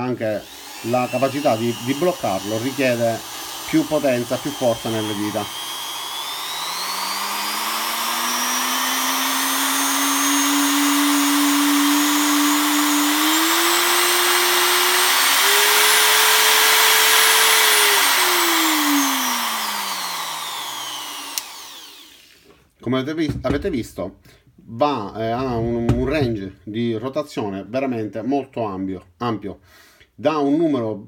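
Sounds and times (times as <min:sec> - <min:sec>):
die grinder motor whine: 0:00.4 - 0:22.4
click: 0:21.3 - 0:21.6.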